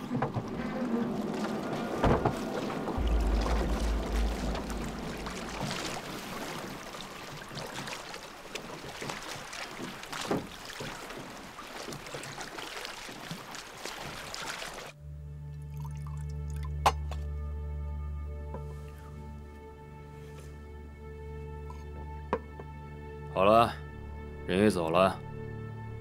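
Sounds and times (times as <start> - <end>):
deep low rumble: 0.0 - 8.3
water splashing around boat: 0.0 - 15.0.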